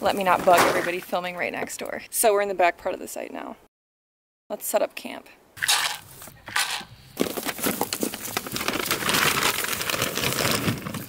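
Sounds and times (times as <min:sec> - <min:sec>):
plastic bag crinkling: 0:05.6 - 0:11.0.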